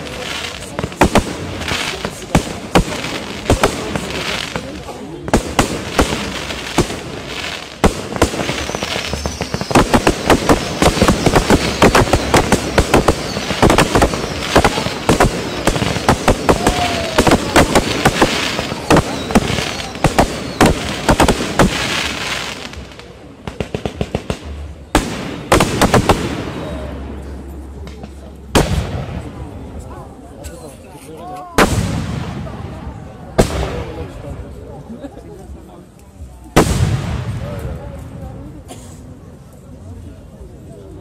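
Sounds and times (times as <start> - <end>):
fireworks bursting and crackling: 0.0 - 30.7, 31.5 - 34.9, 36.5 - 38.7.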